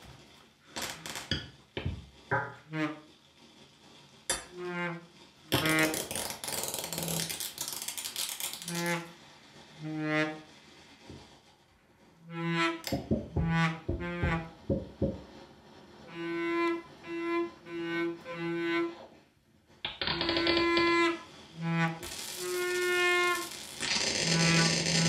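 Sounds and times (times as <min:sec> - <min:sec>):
loud hissing noise: 0:22.0 - 0:25.0.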